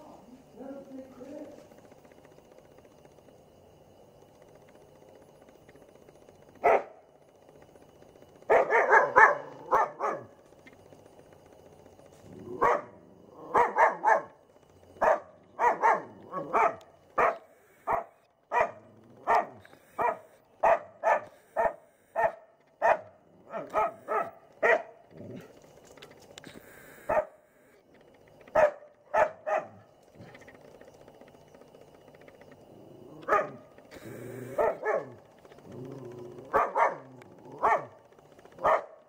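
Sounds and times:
dog barking: 6.6 - 7.0, 8.5 - 10.4, 12.5 - 14.4, 15.0 - 25.0, 27.1 - 27.4, 28.5 - 29.9, 33.2 - 33.6, 34.5 - 35.2, 36.4 - 38.0, 38.6 - 39.0.

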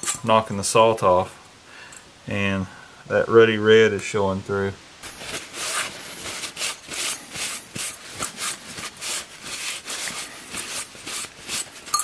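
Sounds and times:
paper towel scrubbing metal: 5.0 - 12.0.

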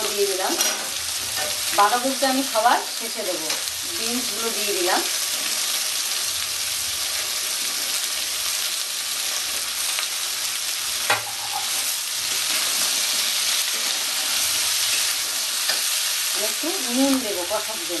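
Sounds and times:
vegetables sizzling in oil: 0.0 - 18.0.

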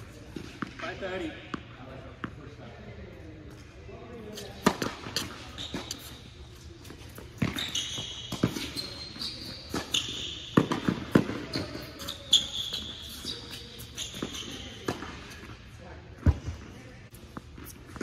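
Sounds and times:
shoes squeaking on court: 0.0 - 18.0
racquets hitting tennis ball: 6.9 - 12.4
tennis ball bouncing: 9.4 - 12.1.

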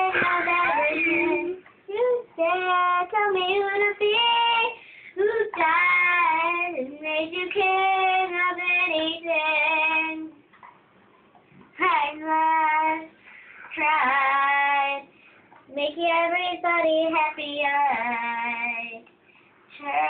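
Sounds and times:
child singing unaccompanied: 0.0 - 10.4, 15.7 - 19.1, 19.7 - 20.0.

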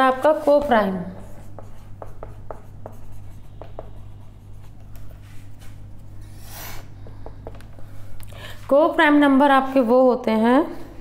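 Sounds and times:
faint low hum: 0.0 - 11.0
marker squeaking on whiteboard: 1.2 - 4.8.

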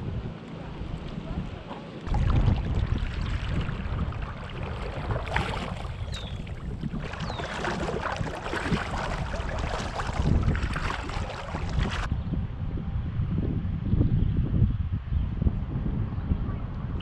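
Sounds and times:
wind buffeting microphone: 0.0 - 17.0
water splashing against kayak hull: 2.1 - 12.1.

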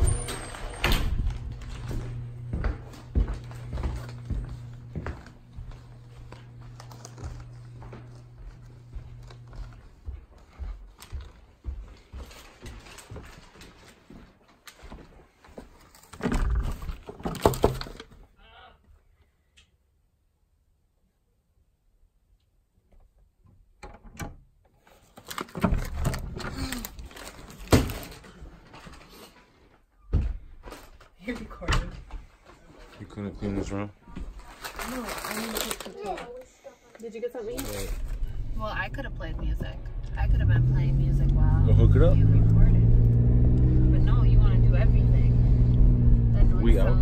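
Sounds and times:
steady low hum: 0.0 - 11.3, 37.5 - 47.0
footsteps on carpeted stairs: 0.1 - 15.8, 28.3 - 33.0.

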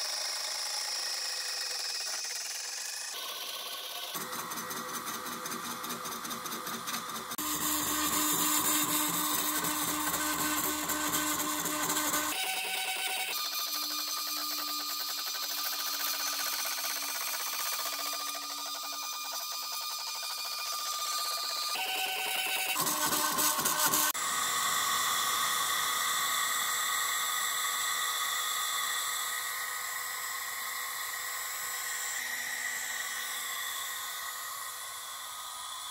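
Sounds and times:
stepper motors whining with pulsing rhythm: 0.0 - 24.2.

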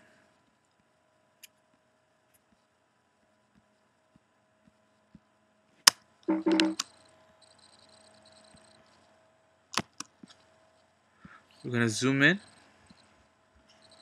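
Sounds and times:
faint steady hum: 0.0 - 14.0
computer clicks: 6.3 - 8.8.

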